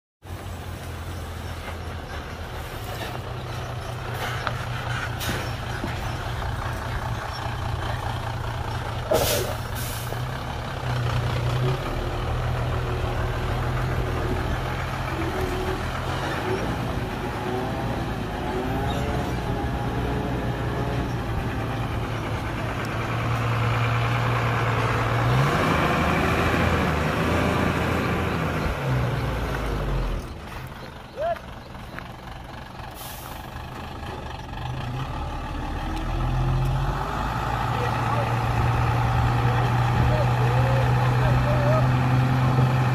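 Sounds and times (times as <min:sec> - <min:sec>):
diesel truck engine: 0:00.2 - 0:42.9
brief air hiss: 0:09.1 - 0:10.2.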